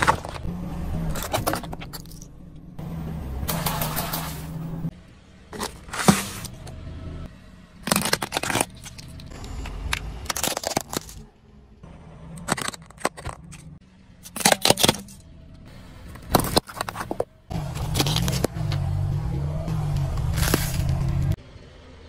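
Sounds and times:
car engine rumble: 0.0s - 22.0s
tyre crushing plastic packaging: 7.8s - 9.1s, 10.3s - 11.2s.

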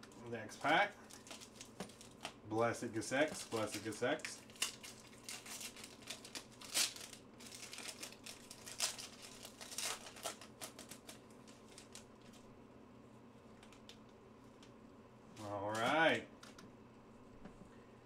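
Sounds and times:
foil wrapper crinkling: 0.0s - 2.4s, 3.1s - 12.5s.

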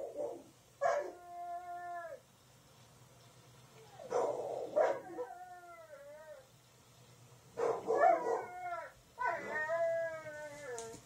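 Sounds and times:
dog howling: 7.8s - 11.0s.

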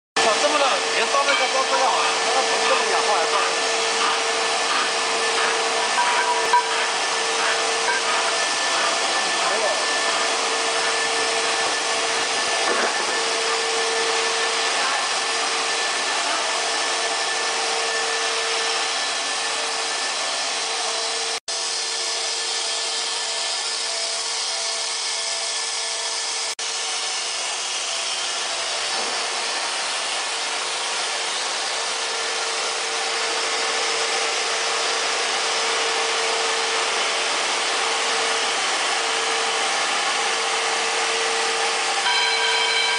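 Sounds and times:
whirring machinery: 0.2s - 42.9s.

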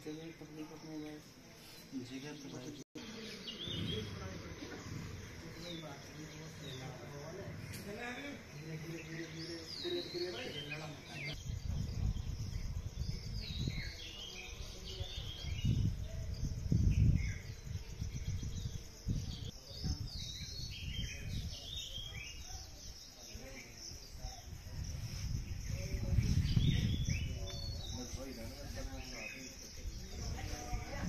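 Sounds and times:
birds chirping: 0.0s - 31.0s
wind buffeting microphone: 11.2s - 23.0s, 23.8s - 31.0s.

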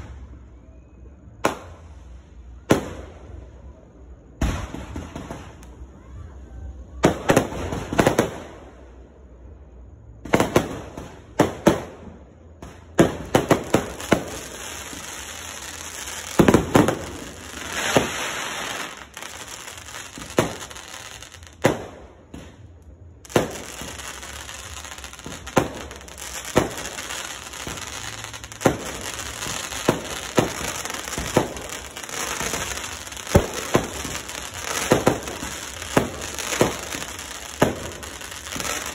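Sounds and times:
fireworks bangs: 4.3s - 5.9s, 10.2s - 38.9s
fireworks crackling: 12.6s - 38.9s.

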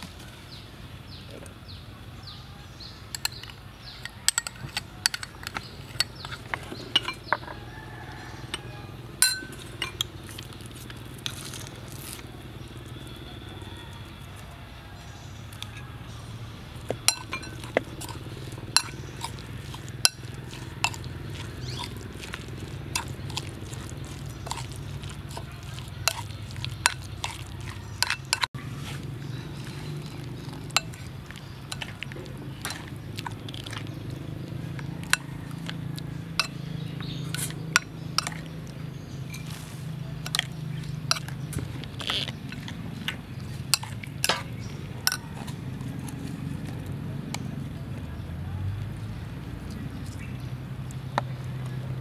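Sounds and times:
metal spoon stirring wet sauce: 2.8s - 52.0s
spoon clinking against bowl: 3.1s - 7.6s, 8.5s - 10.2s, 16.9s - 28.5s, 42.1s - 45.5s.

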